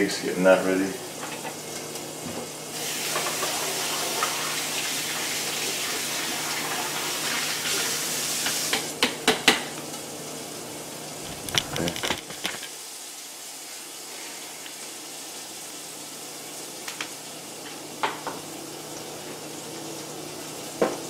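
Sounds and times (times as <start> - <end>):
vegetables sizzling in oil: 1.0 - 6.2.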